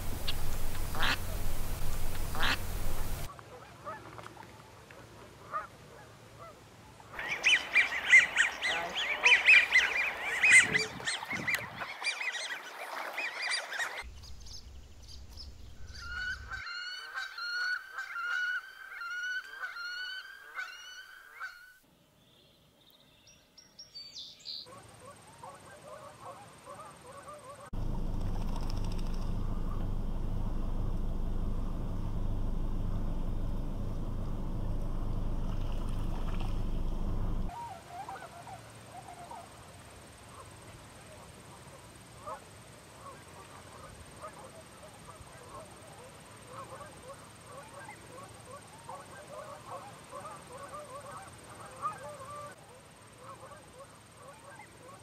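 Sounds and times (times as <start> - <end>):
single bird calling: 0.0 - 3.3
waterfowl flock calling: 0.0 - 4.0, 7.2 - 14.0, 15.9 - 21.8, 30.9 - 39.5
wind-like outdoor noise: 0.0 - 12.9, 14.0 - 16.8.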